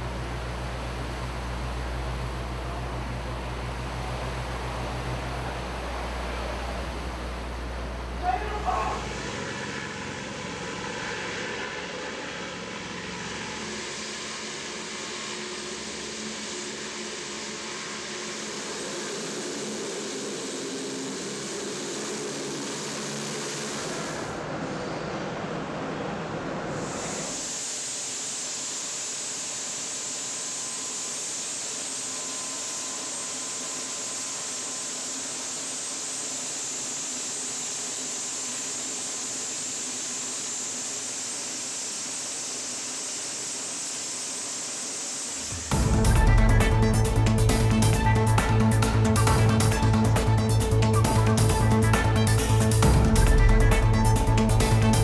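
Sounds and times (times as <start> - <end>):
high machinery hiss: 0.0 - 55.0
hovercraft turbines and fans running: 0.0 - 55.0
spray hissing: 26.8 - 46.2.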